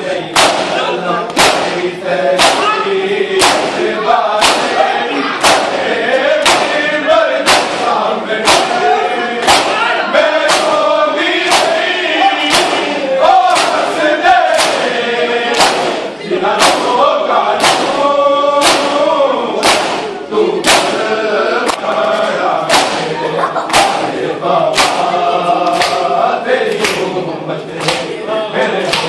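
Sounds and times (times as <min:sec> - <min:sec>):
men chanting in unison: 0:00.0 - 0:29.0
hands slapping bare chests: 0:00.4 - 0:01.8, 0:02.4 - 0:02.8, 0:03.4 - 0:03.8, 0:04.4 - 0:04.8, 0:05.4 - 0:05.8, 0:06.4 - 0:06.8, 0:07.4 - 0:08.8, 0:09.4 - 0:09.8, 0:10.4 - 0:10.8, 0:11.5 - 0:11.9, 0:12.5 - 0:12.9, 0:13.5 - 0:13.9, 0:14.5 - 0:14.9, 0:15.5 - 0:16.0, 0:16.6 - 0:17.0, 0:17.6 - 0:18.0, 0:18.6 - 0:19.0, 0:19.6 - 0:21.0, 0:22.7 - 0:23.1, 0:23.7 - 0:24.1, 0:24.7 - 0:26.1, 0:26.7 - 0:27.1, 0:27.8 - 0:28.1.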